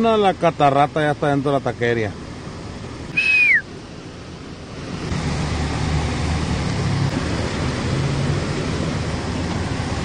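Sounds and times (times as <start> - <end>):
floodwater rushing through street: 2.1 - 10.0
falling whistle-like tone: 3.1 - 3.7.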